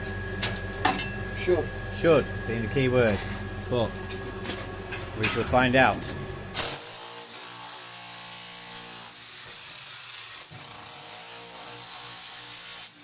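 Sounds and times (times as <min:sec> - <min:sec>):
electric demolition hammer chiselling: 0:06.5 - 0:13.0.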